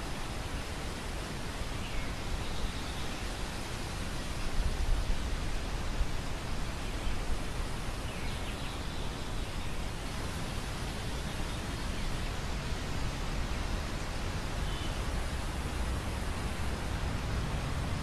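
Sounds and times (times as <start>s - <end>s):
wind rumble on microphone: 9.1s - 18.0s.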